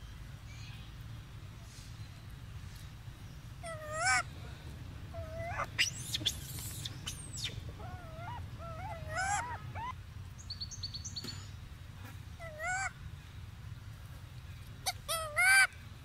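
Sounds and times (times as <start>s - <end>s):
baby monkeys cooing: 3.6s - 10.0s, 12.4s - 12.9s, 14.8s - 15.7s.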